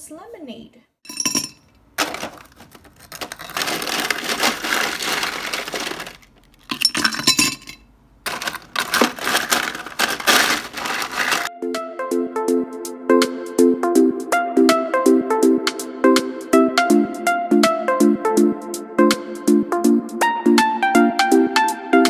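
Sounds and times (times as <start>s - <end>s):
ice cubes clinking into glass jar: 1.1s - 11.5s
music: 11.4s - 22.0s.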